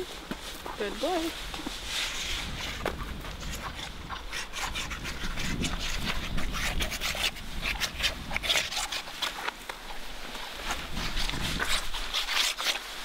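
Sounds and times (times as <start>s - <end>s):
scratchy rubbing on horse coat: 0.4s - 13.0s.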